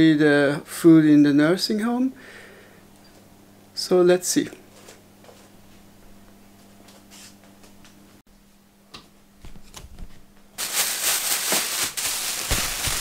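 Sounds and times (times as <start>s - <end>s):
plastic bag crinkling: 10.6s - 13.0s.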